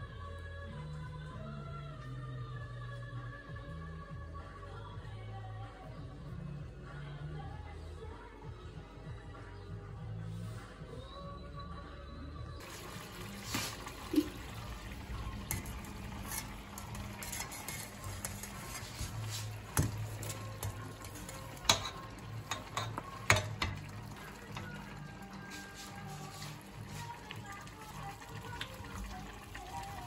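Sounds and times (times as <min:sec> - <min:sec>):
wooden spoon scraping colander: 0:12.7 - 0:23.5, 0:24.6 - 0:27.6.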